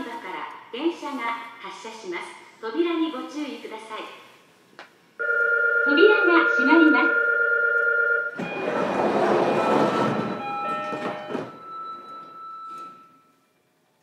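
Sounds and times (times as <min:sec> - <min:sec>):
chime-like tones: 0:08.4 - 0:13.5.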